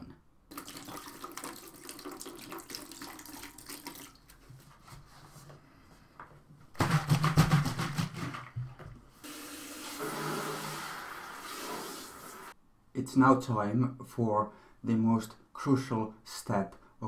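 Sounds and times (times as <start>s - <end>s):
liquid pouring into bucket: 0.5s - 4.4s
plastic buckets knocking: 6.7s - 9.0s.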